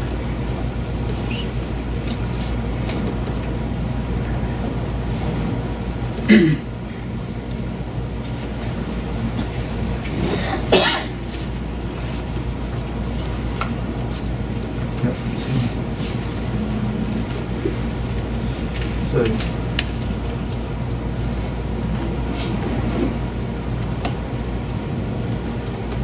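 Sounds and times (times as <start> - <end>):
steady low hum: 0.0 - 26.0
person coughing: 6.3 - 6.7, 10.3 - 11.2.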